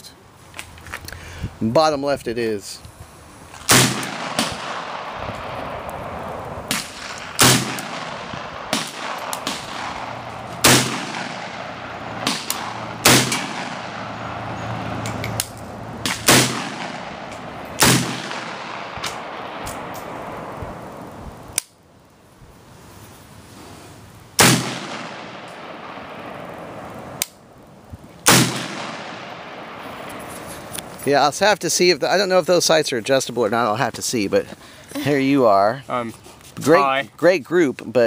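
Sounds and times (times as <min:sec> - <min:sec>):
faint distant gunshots: 0:03.6 - 0:15.3, 0:16.0 - 0:21.0, 0:24.4 - 0:27.2, 0:28.2 - 0:30.7
rifle shots echoing: 0:03.6 - 0:21.2, 0:24.4 - 0:27.5, 0:28.2 - 0:30.7.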